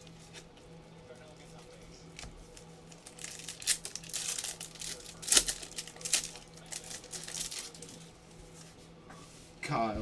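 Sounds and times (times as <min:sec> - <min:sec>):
plastic crinkling and rustling: 0:02.2 - 0:08.0.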